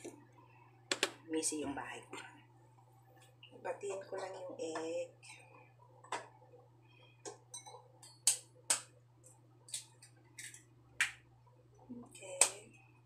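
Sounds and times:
eggs cracking against a bowl: 7.2s - 11.3s.

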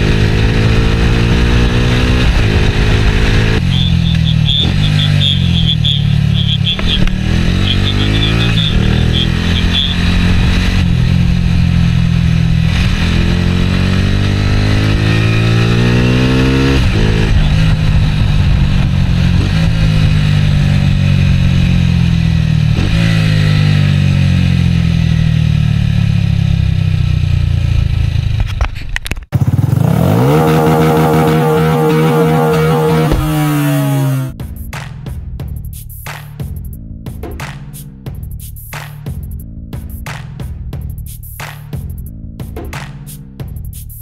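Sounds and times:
small motorcycle engine: 0.0s - 28.4s, 29.3s - 34.4s.

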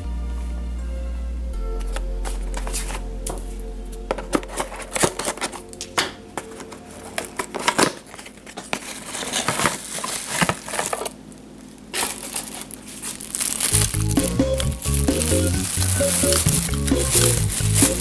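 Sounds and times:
cardboard box being opened: 1.9s - 3.0s, 4.1s - 5.6s, 6.4s - 11.2s, 11.8s - 18.0s
plastic bag crinkling: 2.2s - 3.0s, 4.1s - 18.0s.

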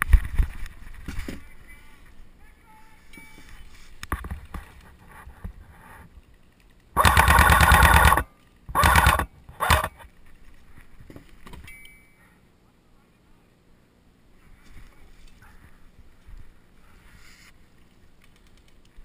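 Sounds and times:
airsoft gun firing full-auto: 7.0s - 10.0s.

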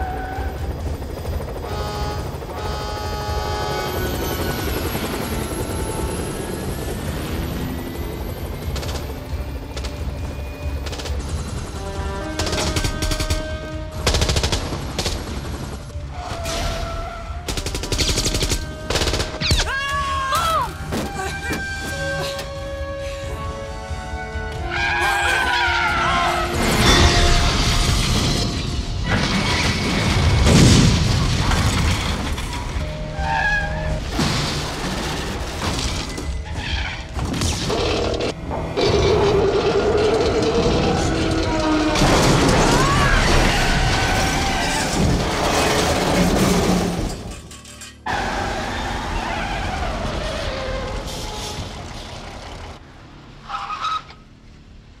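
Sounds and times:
vehicle engines running: 0.0s - 16.5s, 32.0s - 55.0s
dramatic film score: 0.0s - 55.0s.

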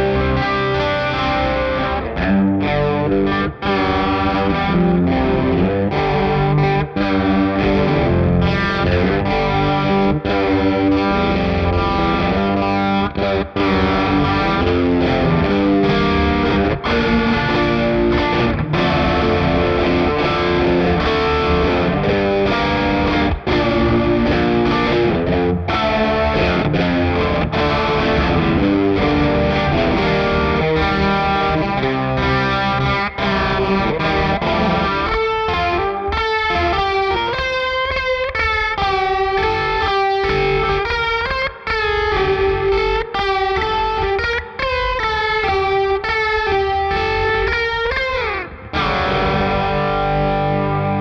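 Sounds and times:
electric guitar with vibrato: 0.0s - 51.0s.

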